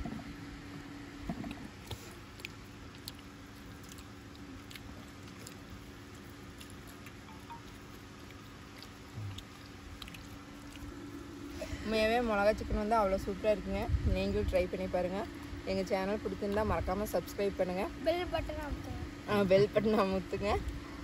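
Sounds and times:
soft chewing: 0.0 - 12.0, 16.2 - 17.2
steady low hum: 0.0 - 21.0.

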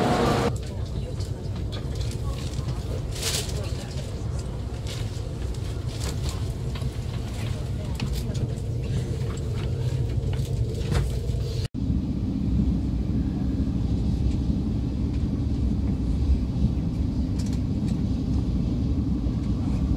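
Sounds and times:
voices: 0.0 - 10.0
train cabin low rumble: 0.0 - 19.9.

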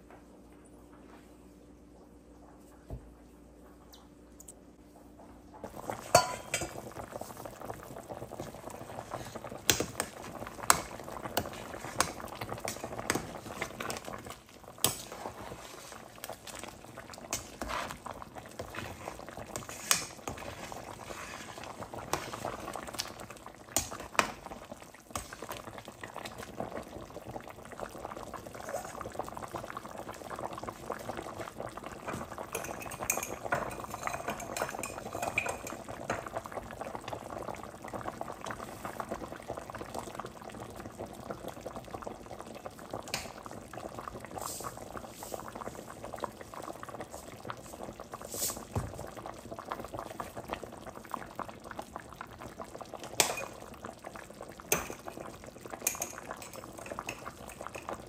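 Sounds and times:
liquid boiling: 0.4 - 58.0
metal utensils clinking: 6.1 - 6.8, 32.5 - 35.8.

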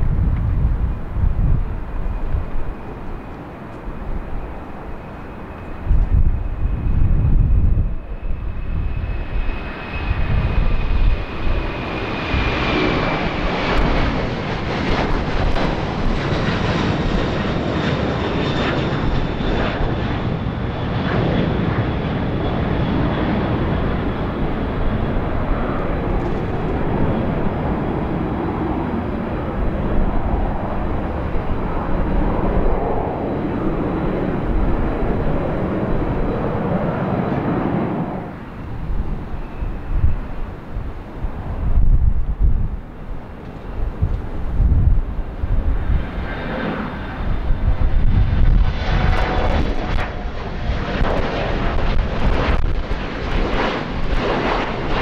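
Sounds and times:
jet engine rumble with high whine: 0.0 - 55.0.

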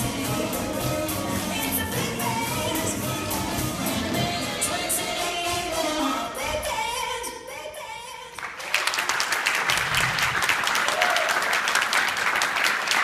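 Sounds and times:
big band song with singing: 0.0 - 7.1
audience applause: 8.4 - 13.0.

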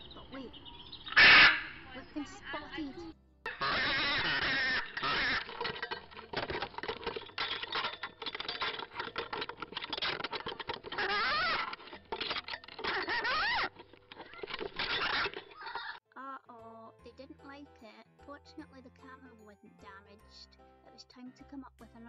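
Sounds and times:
parrot rising calls: 0.8 - 1.9, 3.5 - 5.4
parrot beak chewing on wood: 3.5 - 16.0.

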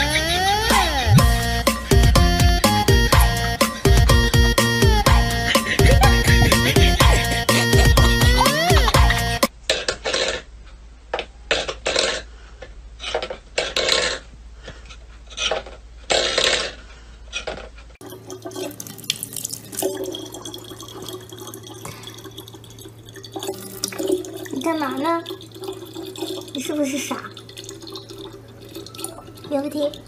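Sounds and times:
tap water running into bottle: 18.0 - 30.0.

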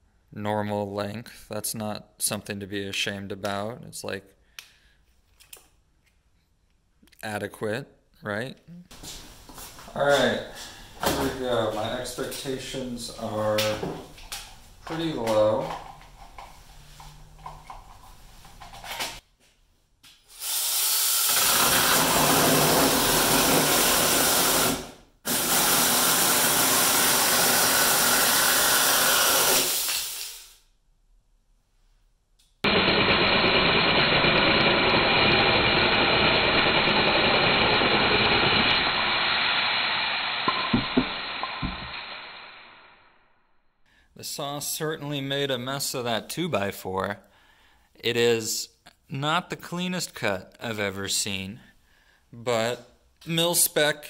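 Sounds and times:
electric chainsaw cutting wood: 20.4 - 30.3, 32.7 - 42.4.

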